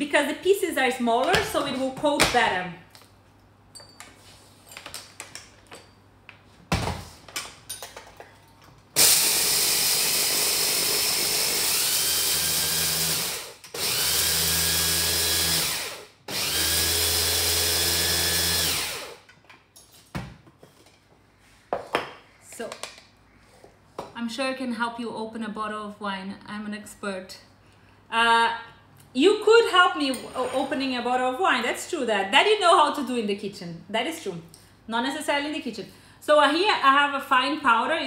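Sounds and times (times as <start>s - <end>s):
food processor grinding: 9.0s - 19.3s.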